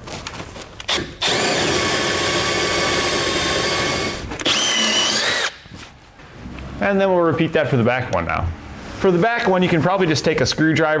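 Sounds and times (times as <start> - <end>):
cordless drill boring metal: 0.9 - 5.6.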